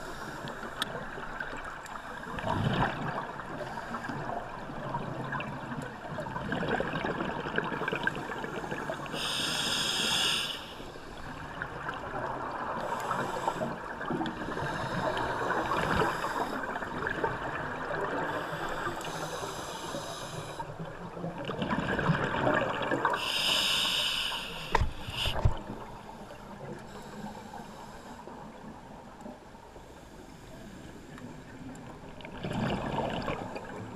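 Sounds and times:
exhaled bubbles gurgling: 0:01.0 - 0:09.4, 0:11.3 - 0:23.3, 0:31.6 - 0:33.9
regulator hissing inhalation: 0:09.1 - 0:10.8, 0:23.2 - 0:25.5.

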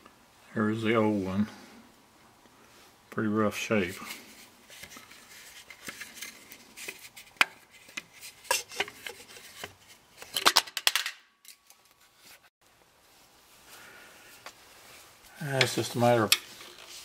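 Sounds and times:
handling clicks and scrapes: 0:03.8 - 0:12.5, 0:15.6 - 0:17.0.

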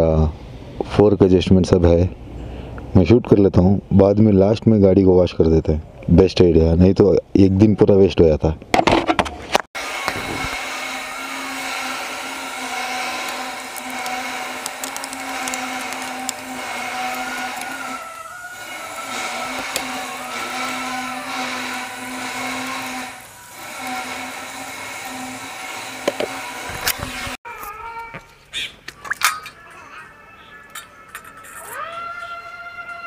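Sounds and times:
small electric motor whining: 0:09.8 - 0:27.4.

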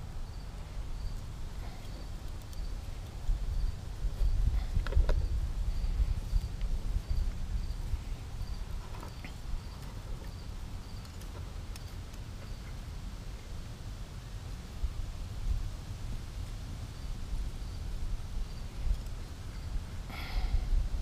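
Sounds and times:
insect chirping: 0:00.0 - 0:12.7, 0:16.9 - 0:20.7.

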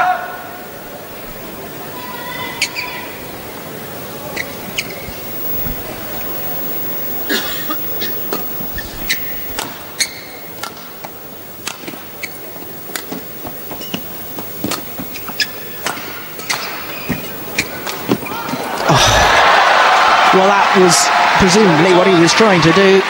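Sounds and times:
crowd hum: 0:00.0 - 0:23.0
shoes squeaking on court: 0:02.4 - 0:03.2, 0:04.2 - 0:18.8.

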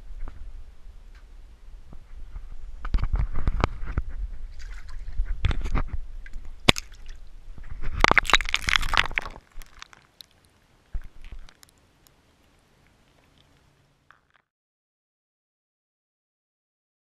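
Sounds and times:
water sloshing and gurgling: 0:04.4 - 0:11.7
water splashing: 0:06.6 - 0:07.3, 0:08.0 - 0:14.4.

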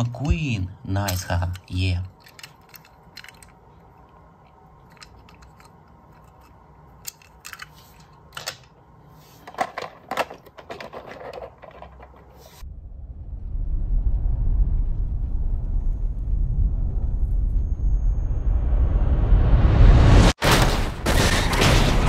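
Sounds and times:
low room hum: 0:00.0 - 0:19.5
toy cars clicking and knocking: 0:01.0 - 0:08.8, 0:09.4 - 0:12.6.

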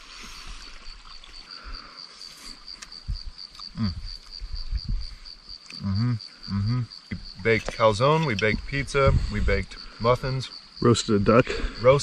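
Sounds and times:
insect trilling: 0:00.0 - 0:12.0
short vocal sound: 0:03.7 - 0:04.1.

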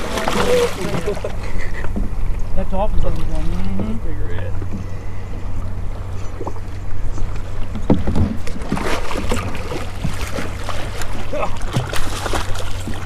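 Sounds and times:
fish splashing in water: 0:00.0 - 0:01.4, 0:08.4 - 0:13.0
boat engine hum: 0:00.0 - 0:13.0.

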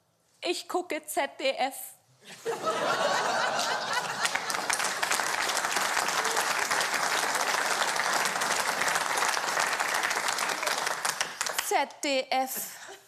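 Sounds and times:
audience laughing: 0:02.3 - 0:05.2
audience applauding: 0:03.2 - 0:11.8.

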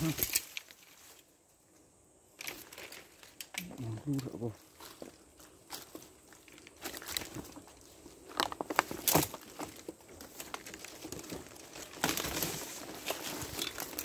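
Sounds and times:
twigs snapping: 0:00.0 - 0:00.9, 0:08.3 - 0:14.0
leaves and undergrowth rustling: 0:00.0 - 0:14.0.

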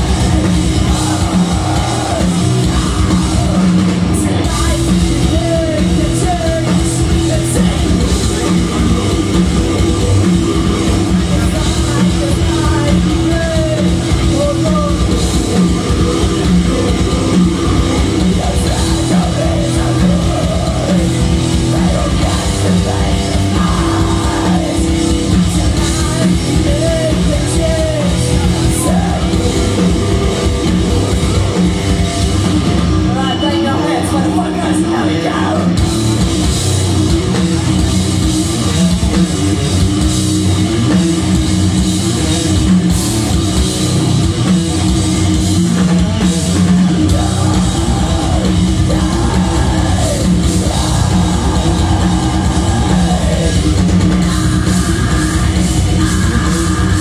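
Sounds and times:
person singing: 0:00.0 - 0:31.4, 0:33.1 - 0:35.9, 0:45.7 - 0:57.0
distorted electric guitars: 0:00.0 - 0:57.0
drum kit: 0:00.0 - 0:57.0.

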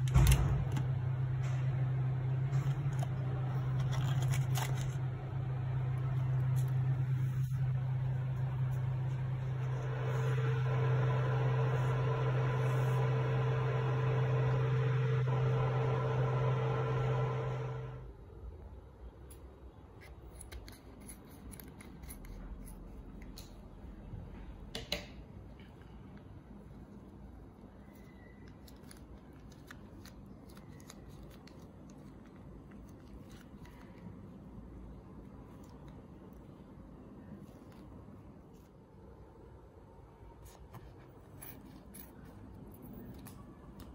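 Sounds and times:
cooling fan running: 0:00.0 - 0:18.3
induction cooktop humming: 0:00.0 - 0:37.4
plastic sachet crinkling: 0:02.8 - 0:05.1.

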